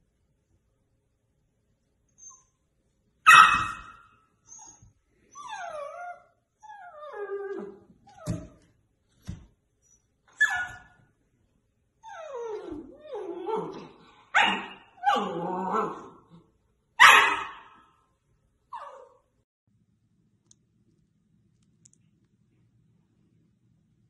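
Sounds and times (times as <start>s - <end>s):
puppy barking: 3.2s - 4.2s, 14.3s - 16.0s, 17.0s - 17.9s
puppy yapping: 3.3s - 4.8s, 10.3s - 11.0s, 14.4s - 16.1s, 17.0s - 17.9s
puppy whimpering: 4.5s - 8.6s, 12.0s - 13.9s.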